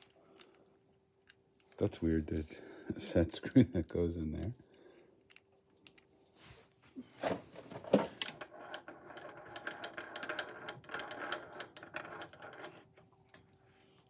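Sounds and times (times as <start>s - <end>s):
vise clicking and rattling: 7.9s - 13.0s.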